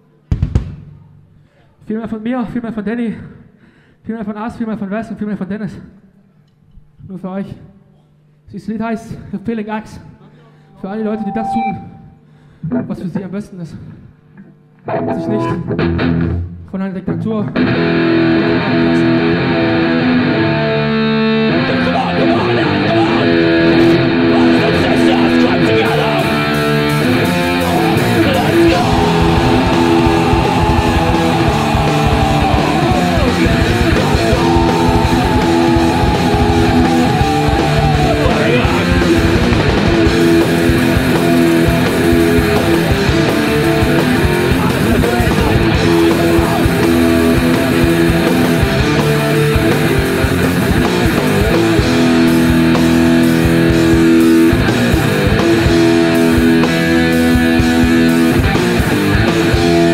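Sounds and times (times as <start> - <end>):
distorted electric guitar: 14.8 - 16.6, 17.5 - 59.9
live hardcore band playing: 17.6 - 59.9.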